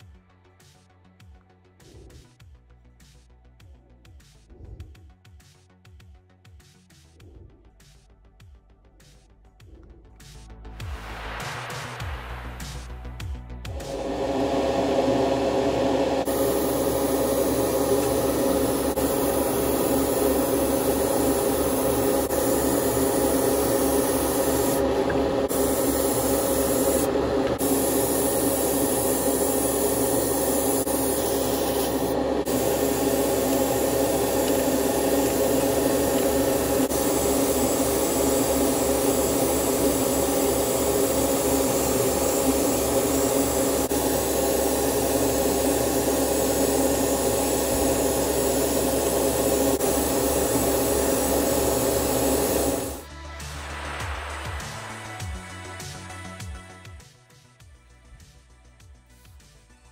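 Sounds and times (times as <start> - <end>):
motor hum: 13.7 - 53.1
airbrush spraying hiss: 16.2 - 54.9.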